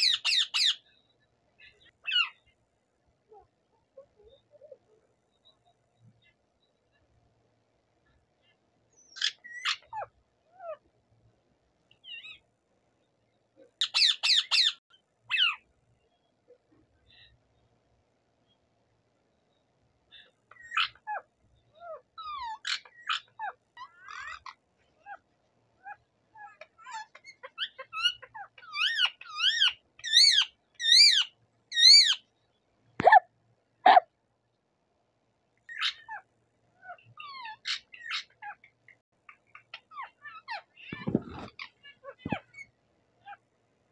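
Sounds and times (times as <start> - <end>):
parakeet squawks: 0.0 - 0.8, 1.8 - 2.4, 9.1 - 10.8, 12.0 - 12.4, 13.8 - 15.6, 20.1 - 32.2, 33.0 - 33.3, 35.7 - 43.4
parakeet calling: 0.0 - 0.9, 1.6 - 2.5, 9.0 - 10.8, 12.0 - 12.4, 13.8 - 15.6, 20.1 - 25.2, 25.8 - 32.3, 35.7 - 43.4.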